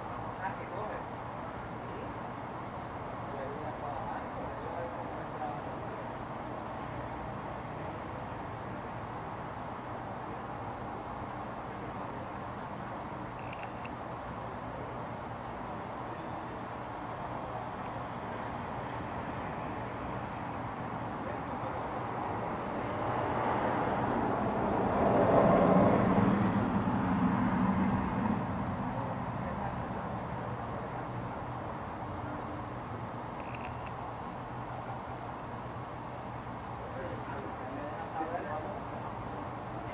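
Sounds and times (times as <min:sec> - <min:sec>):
high-pitched insect trill: 0:00.0 - 0:39.9
vehicle passing: 0:18.0 - 0:31.5.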